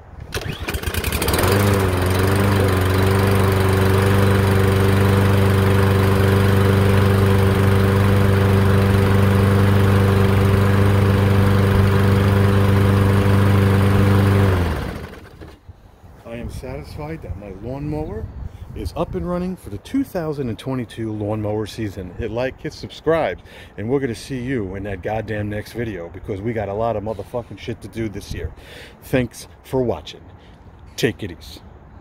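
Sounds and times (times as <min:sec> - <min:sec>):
lawn mower engine running: 0:00.2 - 0:15.6.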